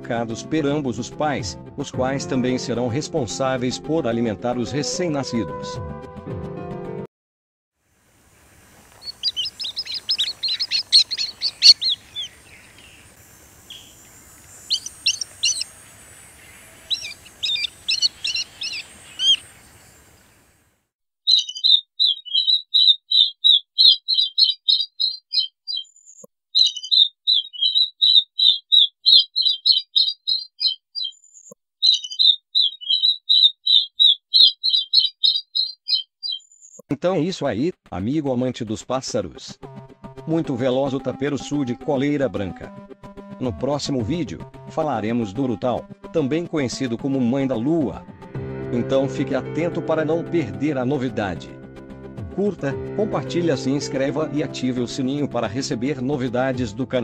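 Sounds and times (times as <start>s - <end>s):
faint background hiss: 7.9s - 20.7s
swift high chattering calls: 8.7s - 20.6s, 21.3s - 36.8s
swift high twittering: 8.9s - 20.4s, 21.3s - 25.9s, 26.6s - 31.2s, 31.8s - 36.5s.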